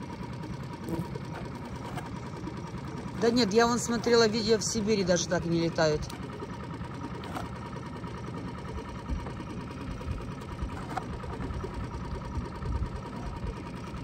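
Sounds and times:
small engine idling: 0.0s - 14.0s.

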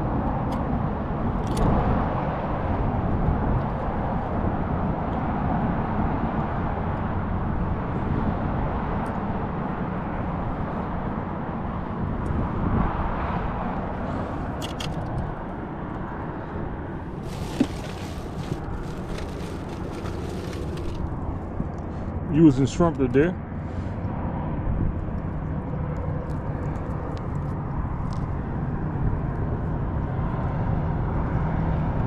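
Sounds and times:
plastic bag and foil crinkling: 17.2s - 21.1s.

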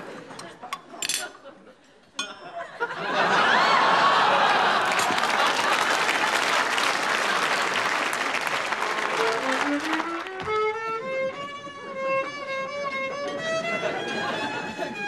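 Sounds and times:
audience applause: 3.4s - 10.6s
solo violin melody: 9.0s - 15.0s.

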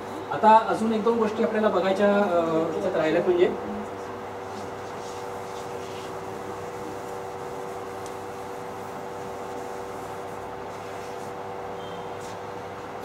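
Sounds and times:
room hum with held tones: 0.0s - 13.0s.

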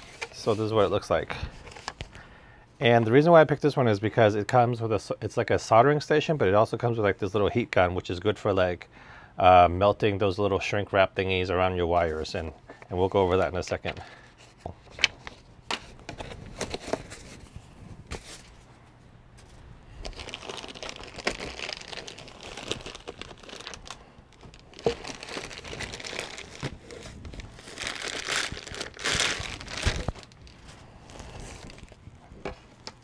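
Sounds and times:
plastic wrap and foam crinkling: 0.0s - 2.1s, 19.5s - 33.0s.

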